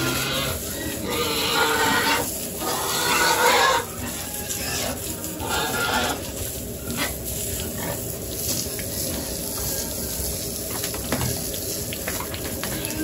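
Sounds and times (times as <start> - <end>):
pigs grunting and squealing: 0.0 - 8.1
water spraying from hose: 0.0 - 13.0.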